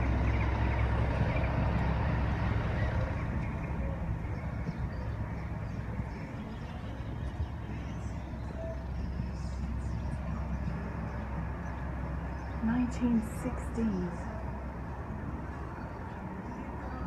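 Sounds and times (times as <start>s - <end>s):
low street background: 0.0s - 17.0s
vehicle passing: 0.0s - 17.0s.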